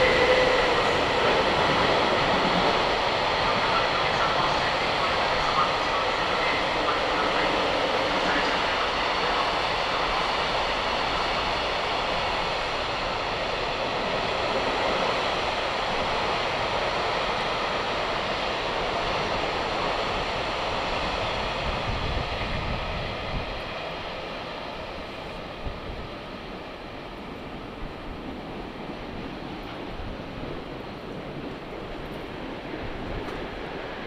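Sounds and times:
train running: 0.0 - 34.0.

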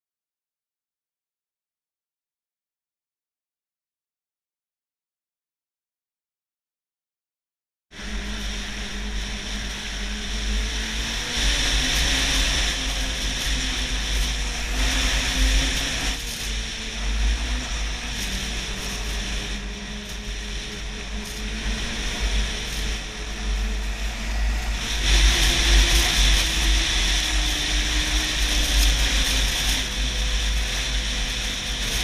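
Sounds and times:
wind rumble on microphone: 7.9 - 32.0
snowmobile engine running: 8.0 - 32.0.

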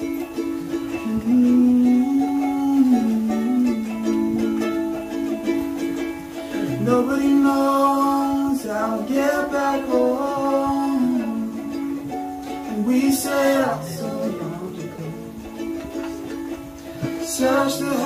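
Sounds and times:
ukulele strumming: 0.0 - 18.0
young man singing: 0.9 - 4.8, 6.5 - 16.0, 16.8 - 18.0.

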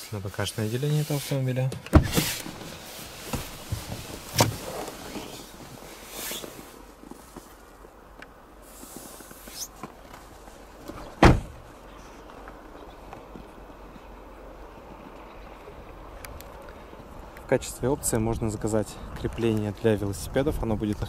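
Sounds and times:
rustling: 0.0 - 8.0
car door shutting with thump: 1.8 - 2.7, 3.3 - 4.8, 10.9 - 11.6
car door clicking open: 3.3 - 4.6.

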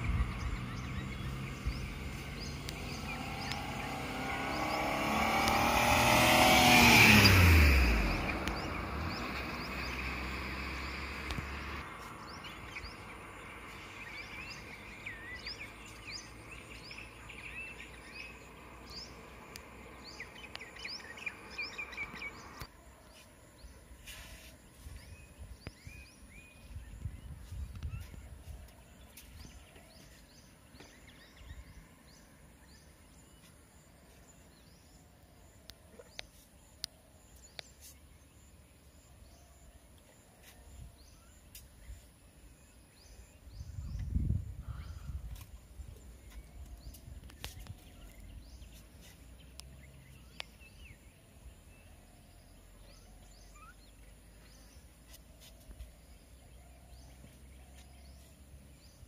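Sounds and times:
faint bird calls: 51.8 - 58.4.

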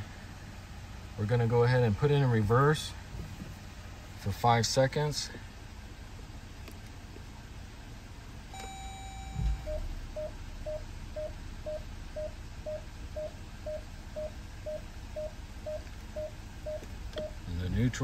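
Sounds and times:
engine idling hum: 0.0 - 18.0
car chime: 8.5 - 17.4
parking sensor beeping: 8.5 - 17.5.

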